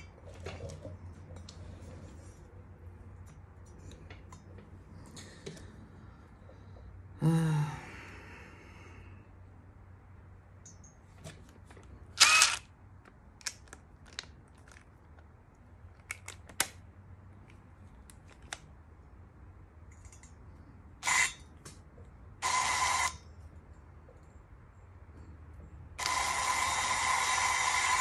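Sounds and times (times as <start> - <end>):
cordless driver whirring: 12.2 - 12.7, 21.0 - 21.4, 22.4 - 23.2, 26.0 - 28.0
clicks and knocks of tools: 19.9 - 20.4.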